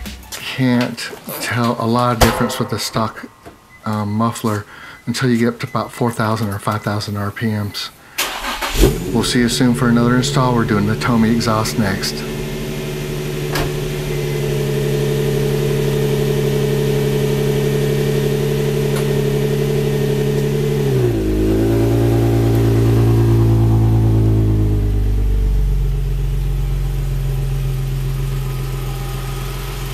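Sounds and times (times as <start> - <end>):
car engine idling: 7.9 - 29.9.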